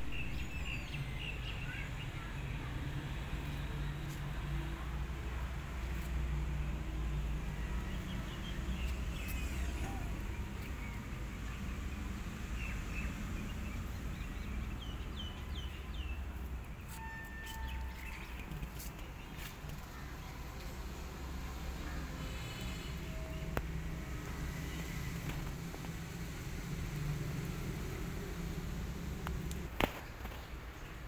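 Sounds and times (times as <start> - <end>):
small birds chirping: 7.7 - 20.1.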